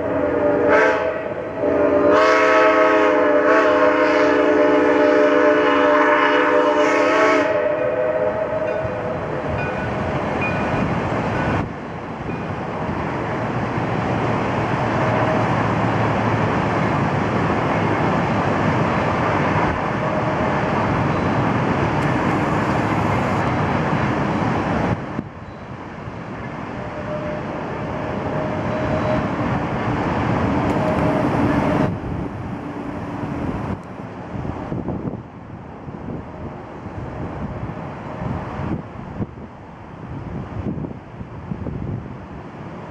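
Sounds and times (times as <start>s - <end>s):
steam locomotive whistle chord: 0.0s - 9.9s, 26.8s - 29.4s
steady rushing noise: 7.6s - 42.9s.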